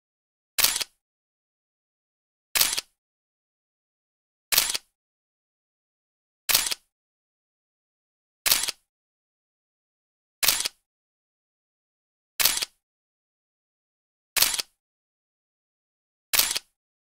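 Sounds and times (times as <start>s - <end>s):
camera shutter clicks: 0.6s - 1.0s, 2.6s - 3.0s, 4.5s - 4.9s, 6.5s - 6.9s, 8.5s - 8.9s, 10.4s - 10.8s, 12.4s - 12.8s, 14.4s - 14.8s, 16.3s - 16.8s.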